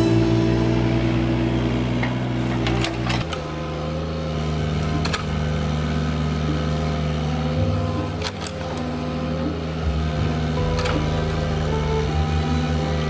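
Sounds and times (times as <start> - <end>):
excavator diesel engine running: 0.0 - 13.0
excavator bucket clanking: 1.9 - 3.7, 7.8 - 12.2.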